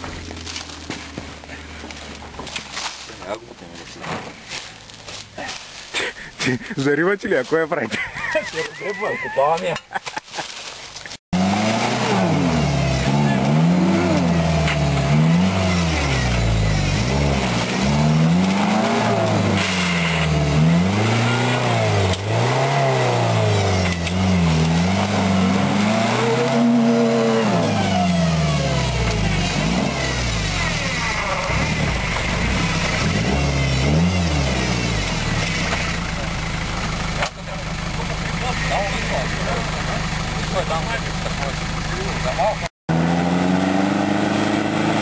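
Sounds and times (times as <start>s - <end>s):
car engine revving: 11.3s - 45.0s.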